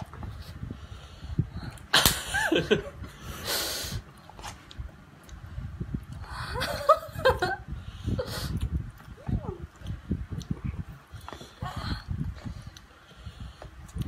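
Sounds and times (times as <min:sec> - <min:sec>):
laughter: 0:02.0 - 0:03.0, 0:06.4 - 0:07.7.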